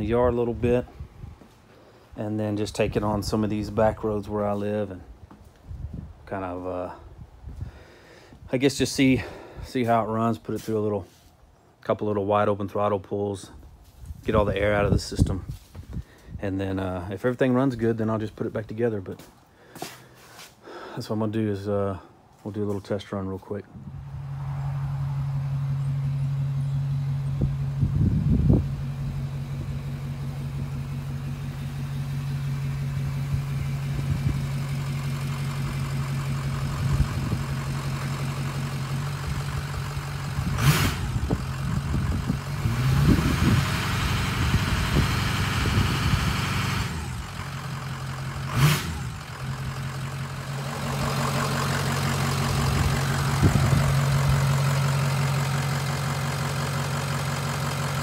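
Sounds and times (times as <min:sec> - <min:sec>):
truck diesel engine running: 0:23.8 - 0:58.0.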